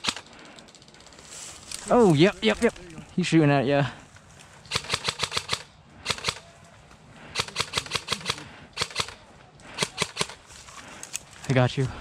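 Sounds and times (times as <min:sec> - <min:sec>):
airsoft rifle firing: 0:00.0 - 0:00.4, 0:04.7 - 0:06.5, 0:07.3 - 0:10.4.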